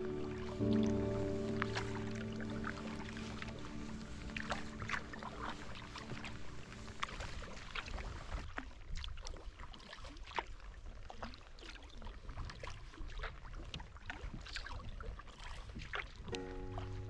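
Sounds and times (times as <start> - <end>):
low rumble: 0.0 - 8.4
water dripping off paddle: 0.0 - 10.5
paddle strokes in water: 0.0 - 17.0.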